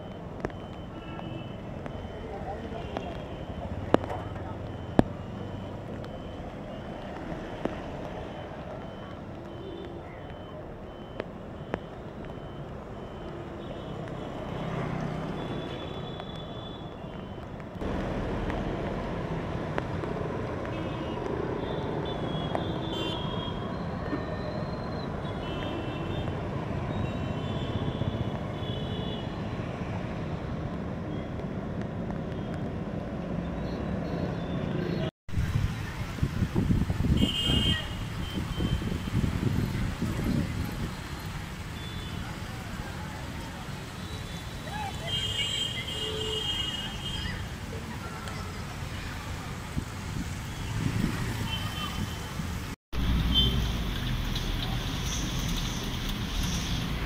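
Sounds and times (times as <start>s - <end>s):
faint high beeps: 0.0s - 17.5s
traffic on wet road: 0.0s - 57.0s.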